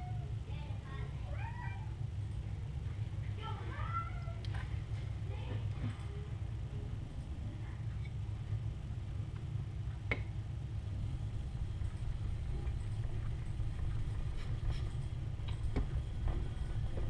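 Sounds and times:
low rumble: 0.0s - 17.0s.

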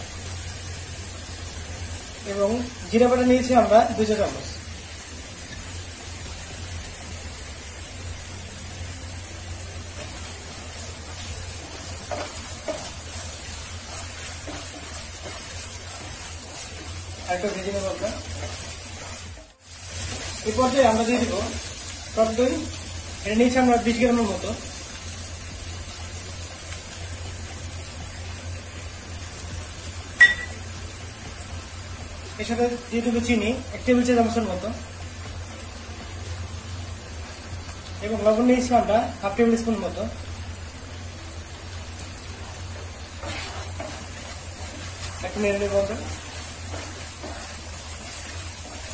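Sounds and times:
paste sizzling in hot oil: 0.0s - 48.9s
sharp clink: 30.2s - 30.6s
wooden spatula scraping pan: 43.2s - 45.2s.

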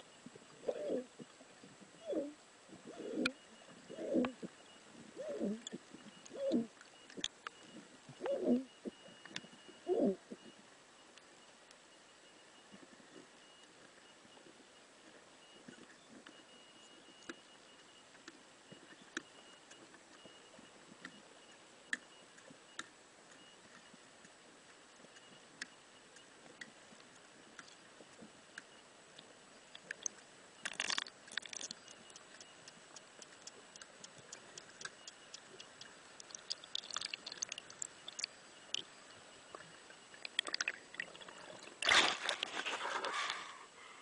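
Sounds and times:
faint underwater ambience: 0.0s - 44.0s
faint clicks: 15.7s - 38.9s
sharp underwater clicks: 28.6s - 38.9s, 39.5s - 42.4s.

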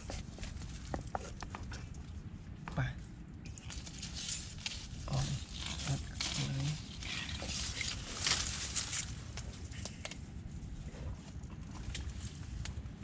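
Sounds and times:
leaf litter rustling: 3.6s - 9.9s.

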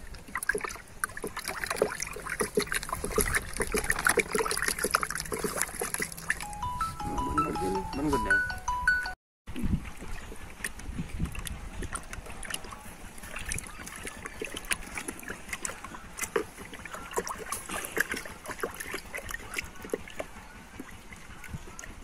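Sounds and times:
wind rumble on microphone: 9.5s - 13.7s.

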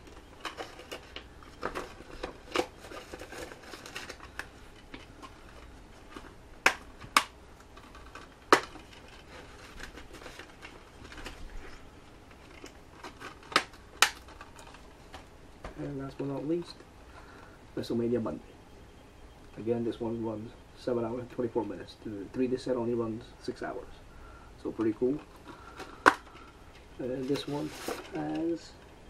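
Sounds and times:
plastic disc cases rustling: 0.0s - 17.5s, 24.6s - 29.0s
disc case sharp clicks: 6.6s - 7.3s, 8.2s - 8.9s, 13.4s - 14.4s.

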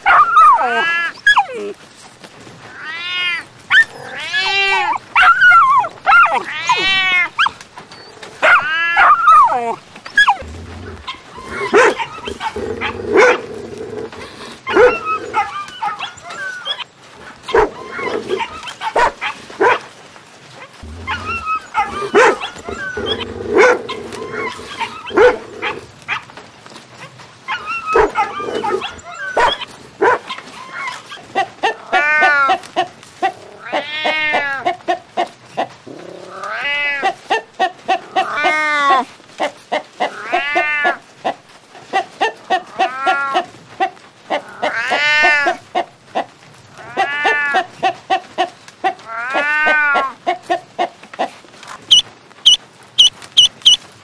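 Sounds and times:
dogs whining and barking: 0.0s - 2.0s, 3.2s - 19.9s, 20.6s - 26.4s, 27.0s - 32.8s, 51.8s - 53.9s
hen cackling: 20.8s - 25.9s, 39.7s - 53.9s.

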